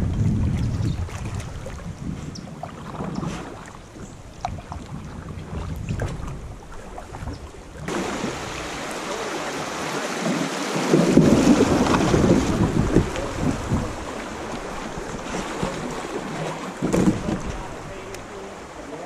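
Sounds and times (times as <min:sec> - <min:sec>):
river water rushing: 0:07.8 - 0:19.0.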